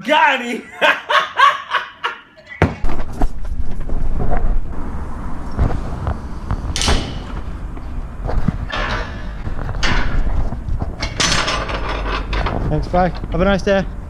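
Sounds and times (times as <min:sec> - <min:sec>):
wind rumbling on microphone: 0:03.0 - 0:11.4
gate knocking: 0:06.8 - 0:07.7, 0:08.6 - 0:10.4
gate scraping clatter: 0:06.8 - 0:13.2.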